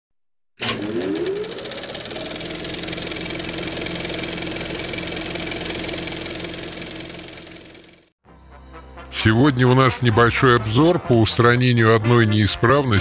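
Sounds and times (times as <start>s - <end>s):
machine motor whining and humming: 0.6s - 8.0s.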